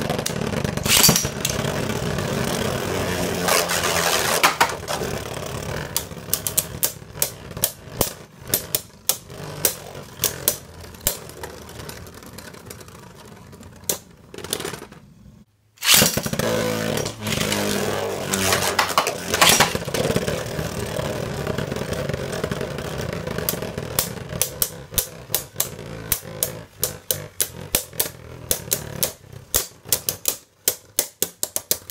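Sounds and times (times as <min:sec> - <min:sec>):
spinning tops whirring: 0:00.0 - 0:15.0, 0:15.8 - 0:31.9
spinning tops clashing clicks: 0:00.8 - 0:01.6, 0:03.6 - 0:05.0, 0:15.8 - 0:16.3, 0:17.0 - 0:19.8.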